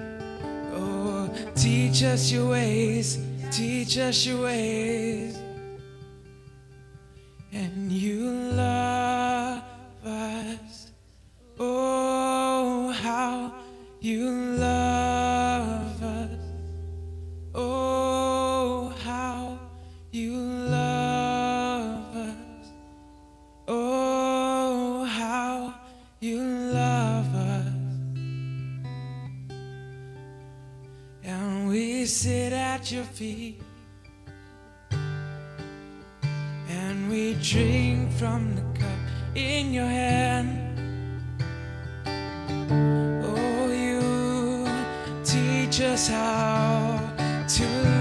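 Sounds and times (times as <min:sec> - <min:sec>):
acoustic guitar: 0:00.0 - 0:48.0
man singing worship song: 0:00.7 - 0:05.6, 0:07.5 - 0:16.6, 0:17.6 - 0:22.7, 0:23.7 - 0:28.0, 0:31.2 - 0:33.8, 0:36.6 - 0:40.8, 0:43.2 - 0:48.0.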